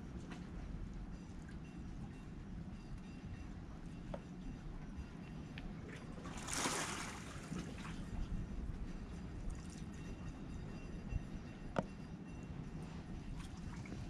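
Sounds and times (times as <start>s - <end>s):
seawater sloshing among blocks: 6.2s - 8.1s
rushing water splash: 6.4s - 7.4s.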